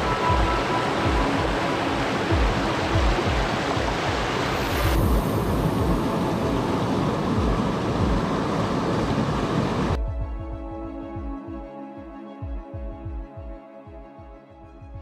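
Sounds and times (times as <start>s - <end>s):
background music with pulsing beat: 0.0s - 8.4s, 9.9s - 15.0s
creek water rushing over boulders: 0.0s - 10.0s.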